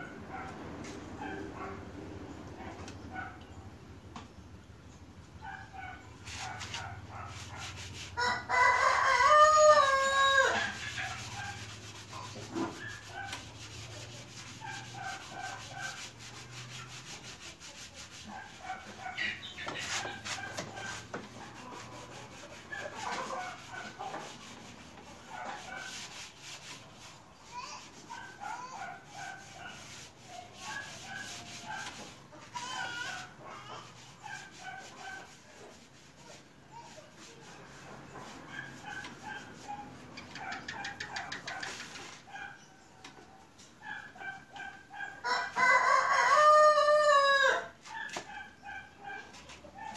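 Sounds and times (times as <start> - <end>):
rooster crowing: 8.2 - 10.8, 45.2 - 47.8
chickens clucking and chirping: 18.8 - 26.9, 37.9 - 47.2
light clicks and rubbing: 38.2 - 43.8.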